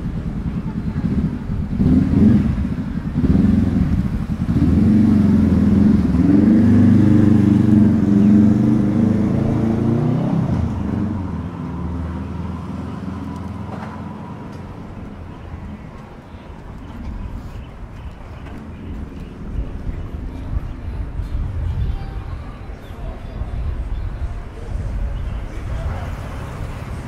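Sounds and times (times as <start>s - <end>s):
vehicle engine passing by: 0.6s - 16.0s, 24.6s - 27.0s.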